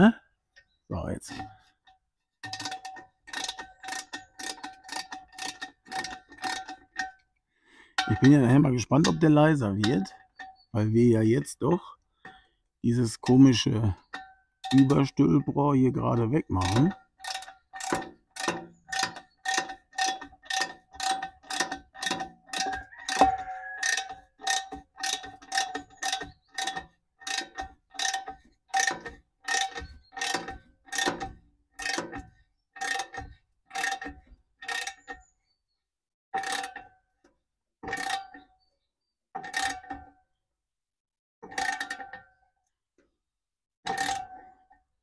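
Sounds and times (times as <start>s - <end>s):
ratchet wrench clicking: 16.7s - 32.2s.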